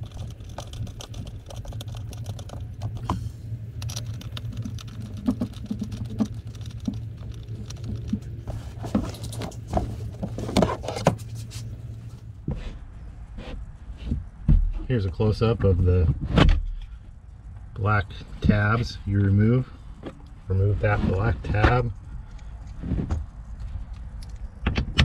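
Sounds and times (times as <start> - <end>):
steady low hum: 0.0 - 25.0
bolts and hardware rattling: 3.8 - 11.2.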